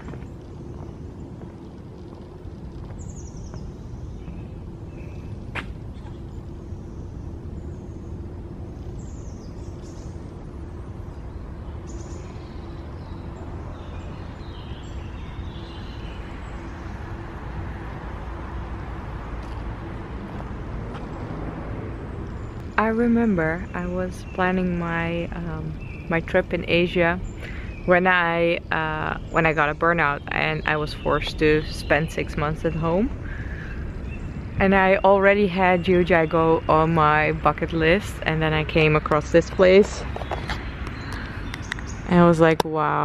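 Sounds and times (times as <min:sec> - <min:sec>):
birds chirping: 0:00.0 - 0:43.0
steady low rumble: 0:00.0 - 0:43.0.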